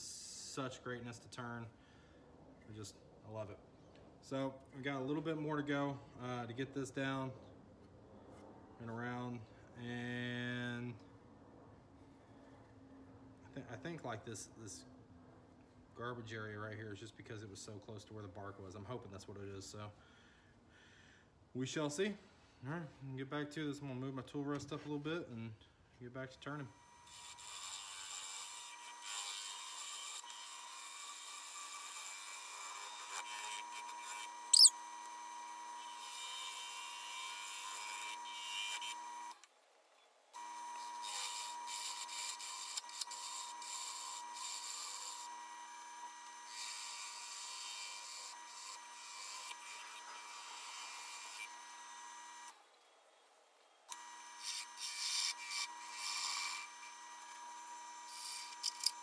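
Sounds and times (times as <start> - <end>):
gouge scraping spinning wood: 27.1 - 34.7, 41.0 - 45.3, 46.5 - 51.6, 54.4 - 57.4, 58.0 - 59.0
loud squeak: 34.5 - 34.8
lathe whine: 40.4 - 52.6, 53.9 - 59.0.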